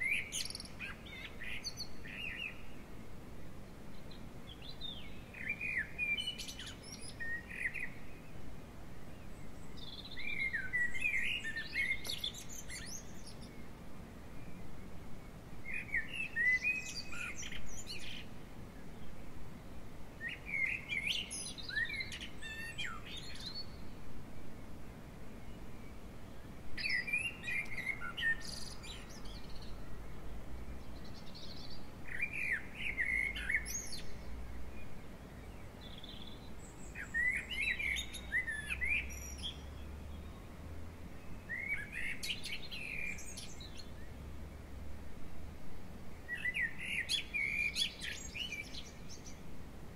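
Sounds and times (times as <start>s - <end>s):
songbird twittering: 0.0s - 2.8s, 9.2s - 13.7s, 26.8s - 29.8s, 35.3s - 40.4s, 46.3s - 49.4s.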